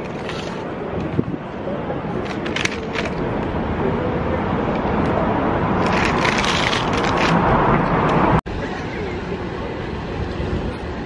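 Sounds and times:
street traffic noise: 0.0 - 11.0
paper bag crinkling: 5.8 - 7.4.

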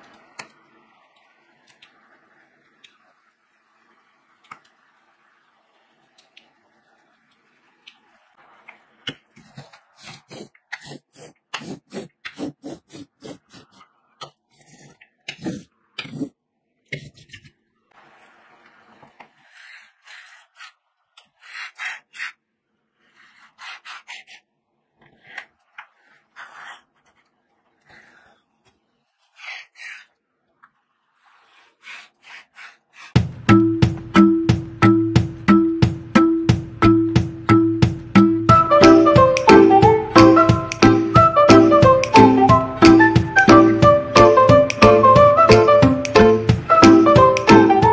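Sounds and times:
tool scraping over resin beads: 9.4 - 17.5, 19.3 - 30.2, 31.2 - 33.2.

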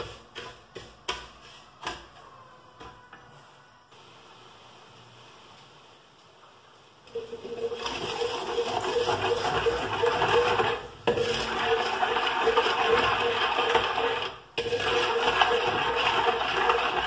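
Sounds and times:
steel spatula scraping a pot: 0.0 - 2.5, 8.0 - 17.0.

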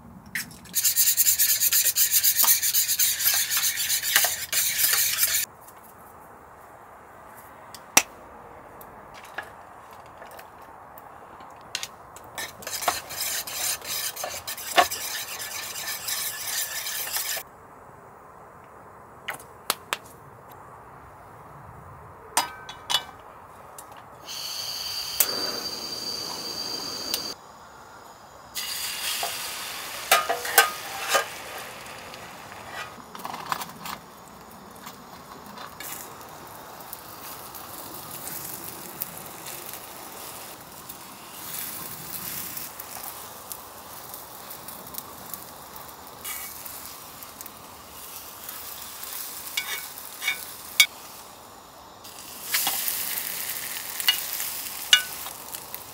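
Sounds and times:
steady hiss: 0.0 - 5.5, 10.7 - 19.2, 22.8 - 55.9
utensils clinking and scraping: 30.1 - 31.4, 49.6 - 50.5.

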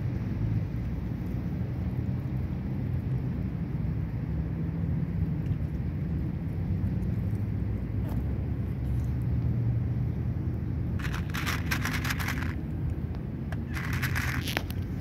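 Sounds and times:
low background rumble: 0.0 - 15.0
cat crunching dry kibble: 11.0 - 12.9, 13.6 - 15.0.

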